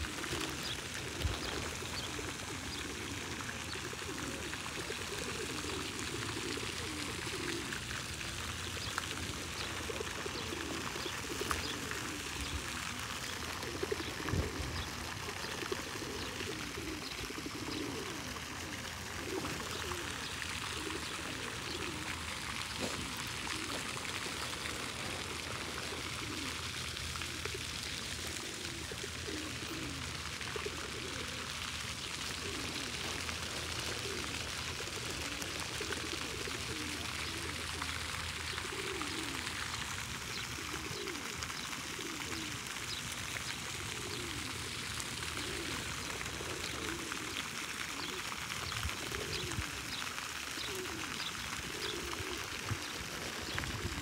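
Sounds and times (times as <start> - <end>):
low bird calls: 45.3 - 54.0.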